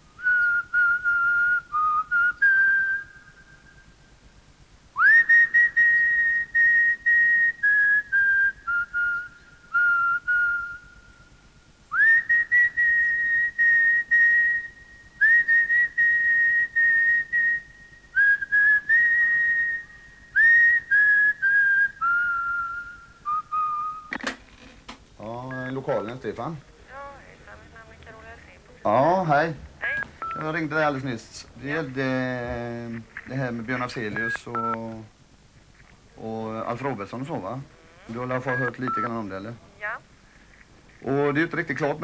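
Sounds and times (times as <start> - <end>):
person whistling slow tune: 0.1 - 3.9, 5.0 - 11.2, 11.9 - 24.1.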